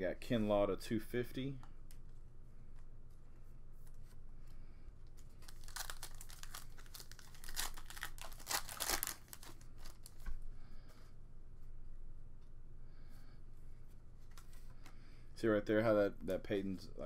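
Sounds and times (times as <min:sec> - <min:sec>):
foil wrapper crinkling and tearing: 0:05.3 - 0:10.2.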